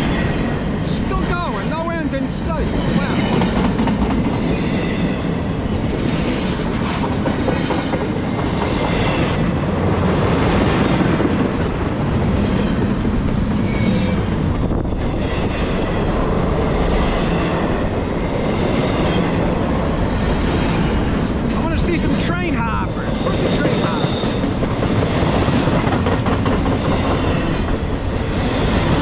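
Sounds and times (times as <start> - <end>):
freight train rolling past: 0.0 - 29.0
high-pitched wheel squeal: 9.1 - 10.0.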